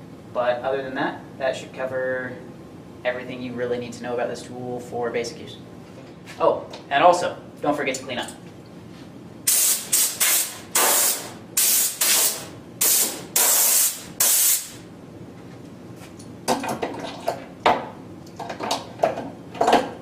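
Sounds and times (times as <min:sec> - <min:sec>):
air blow gun hissing: 0:09.5 - 0:14.8.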